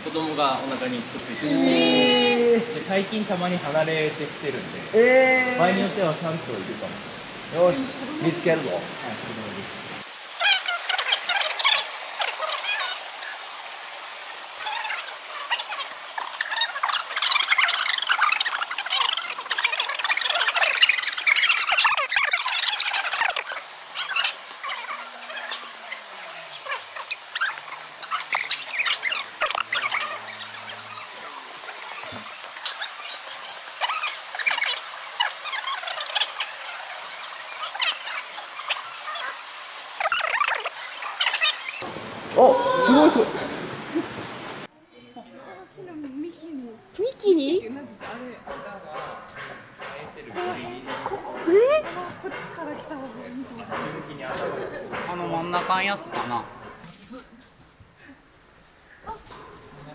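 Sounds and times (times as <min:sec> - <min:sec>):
birds chirping and squawking: 0:10.2 - 0:13.6, 0:14.4 - 0:41.9.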